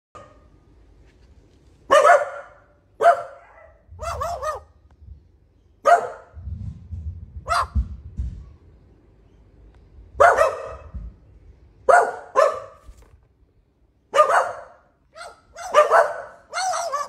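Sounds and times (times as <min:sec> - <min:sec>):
bird mimicking dog barks: 0:01.9 - 0:04.8, 0:10.2 - 0:10.9, 0:14.1 - 0:17.0
low rumble: 0:03.8 - 0:11.9.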